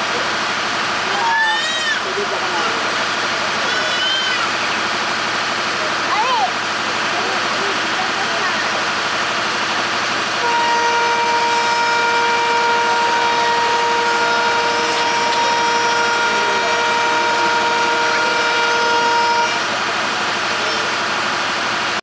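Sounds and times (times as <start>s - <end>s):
passing train running noise: 0.0s - 22.0s
train horn chord: 10.4s - 19.7s.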